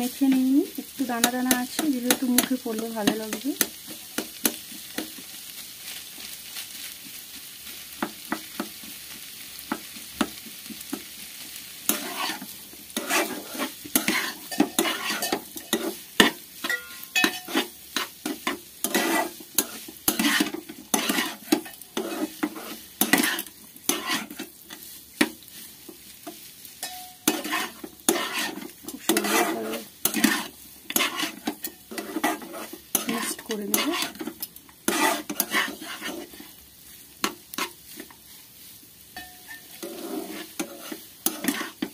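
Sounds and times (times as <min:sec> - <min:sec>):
faint sizzle: 0:00.0 - 0:41.9
metal spatula scraping pan: 0:11.9 - 0:36.6, 0:37.2 - 0:38.4, 0:39.2 - 0:41.9.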